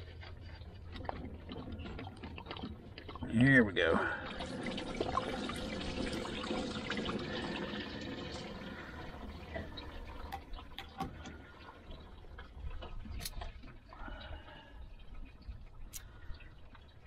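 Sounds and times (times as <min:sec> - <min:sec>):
coolant splashing into a bucket: 0:03.8 - 0:13.6.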